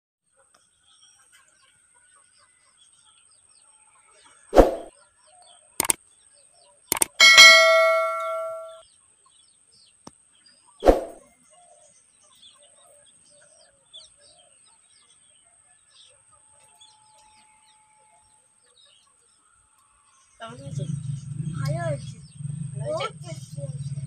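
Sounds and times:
sharp thump: 4.6s - 4.9s
bell-like ding: 7.0s - 8.8s.

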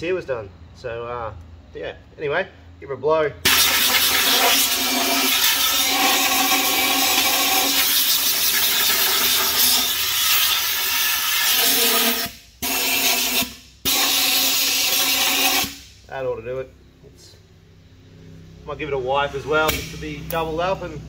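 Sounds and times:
air blow gun hissing: 3.5s - 16.0s.

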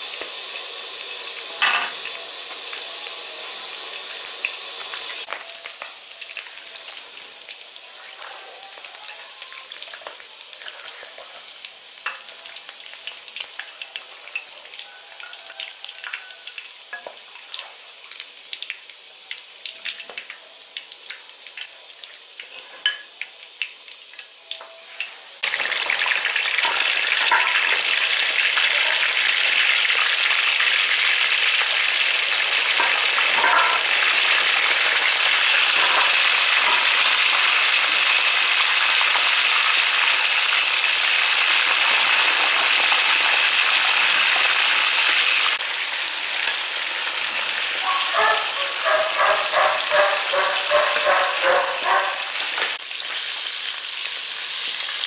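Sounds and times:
meat sizzling in hot oil: 0.0s - 55.0s
spatula scraping wok: 24.9s - 28.3s, 32.4s - 38.0s, 47.6s - 52.6s.

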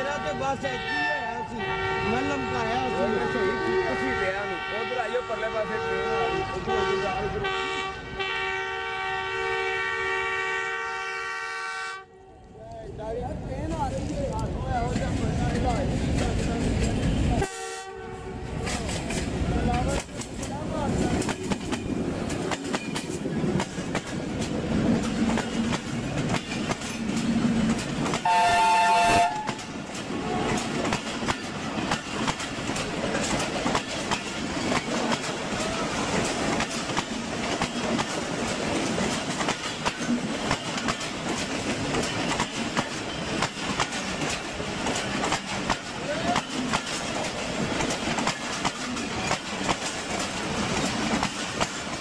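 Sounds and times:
locomotive horn: 0.1s - 12.5s, 17.1s - 18.6s, 28.2s - 30.6s
train wheels clattering over rails: 13.6s - 17.4s, 18.5s - 52.0s.

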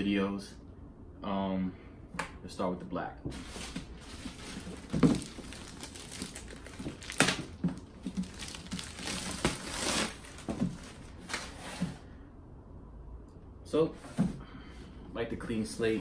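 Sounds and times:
plastic wrapping crinkling: 3.4s - 11.6s.

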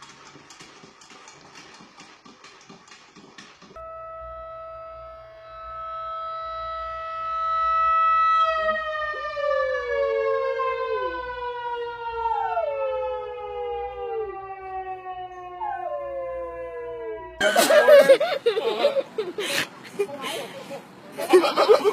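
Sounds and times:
siren: 3.8s - 17.4s
dog howling: 12.2s - 17.4s.

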